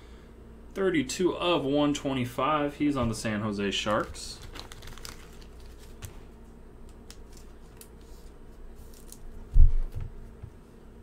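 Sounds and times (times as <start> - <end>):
trading cards handled: 3.8 - 6.3, 6.9 - 9.3.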